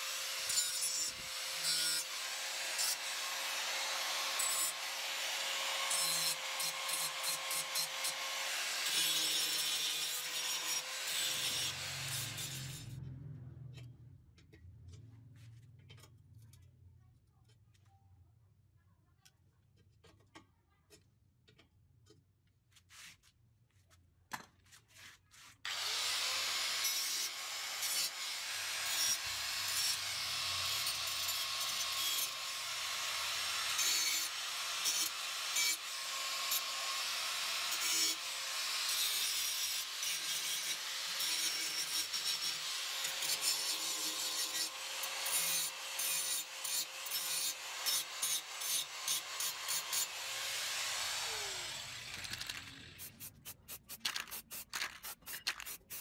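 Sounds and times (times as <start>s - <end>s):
angle grinder grinding metal: 0.0s - 13.0s, 25.7s - 56.0s.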